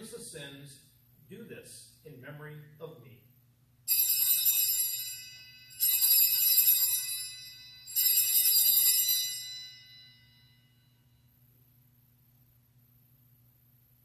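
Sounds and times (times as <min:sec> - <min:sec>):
altar bells jingling: 0:03.9 - 0:11.0.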